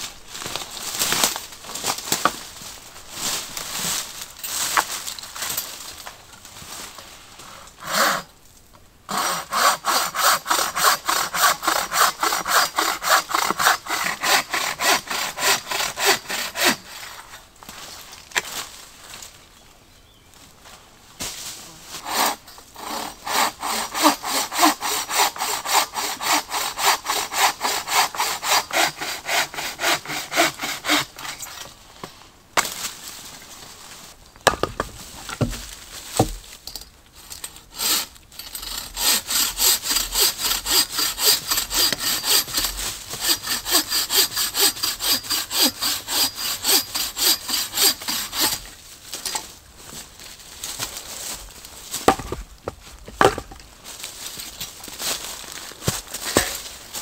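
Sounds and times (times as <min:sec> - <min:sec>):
hand saw cutting wood: 0:07.8 - 0:08.3, 0:09.1 - 0:17.4, 0:22.0 - 0:31.8, 0:37.5 - 0:48.7, 0:56.2 - 0:56.7.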